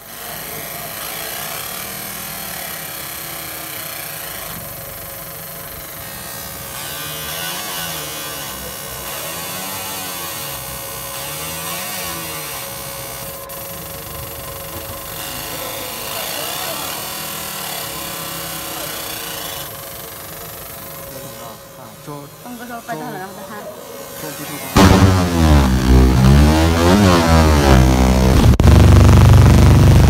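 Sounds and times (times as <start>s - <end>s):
laser engraver buzzing hiss: 0.0s - 25.6s
tones sweeping up and down: 24.6s - 29.7s.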